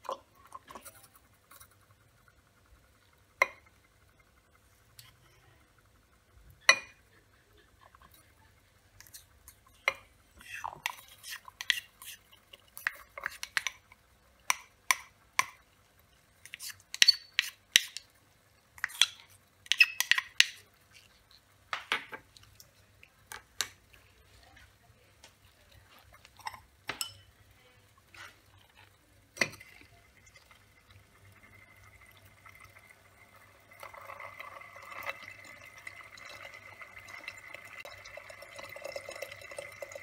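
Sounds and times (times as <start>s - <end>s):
glassware clinking and tapping: 6.7s - 7.0s, 26.4s - 27.3s.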